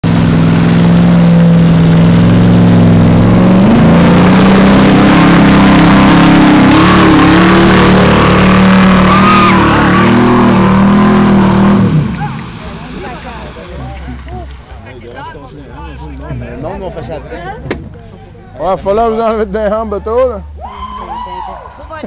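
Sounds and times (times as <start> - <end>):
truck engine revving hard: 0.0 - 14.4.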